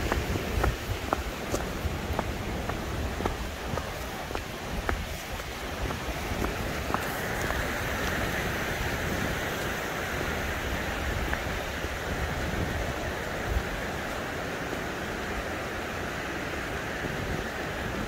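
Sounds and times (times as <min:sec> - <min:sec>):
footsteps on dirt trail: 0:00.0 - 0:12.6
mountain stream rushing: 0:00.0 - 0:18.0.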